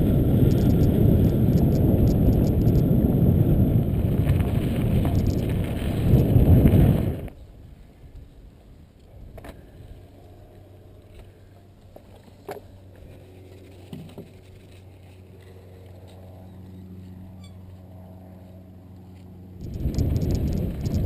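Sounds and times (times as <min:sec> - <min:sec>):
low steady hum: 0:00.0 - 0:21.0
bike gear clicks and knocks: 0:04.2 - 0:05.6, 0:19.6 - 0:21.0.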